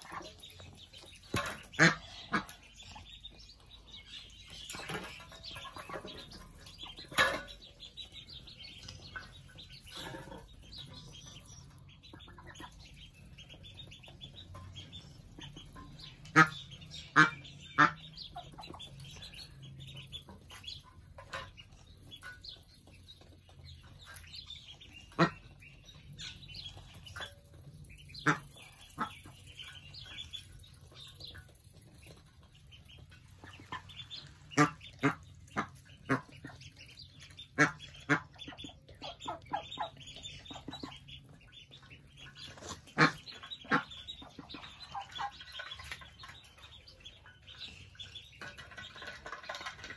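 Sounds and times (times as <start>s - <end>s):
ducklings peeping: 0.0s - 49.9s
duck quacking: 1.3s - 3.0s, 16.0s - 18.8s, 25.0s - 25.5s, 28.1s - 29.4s, 33.5s - 36.6s, 37.3s - 41.0s, 42.4s - 45.8s.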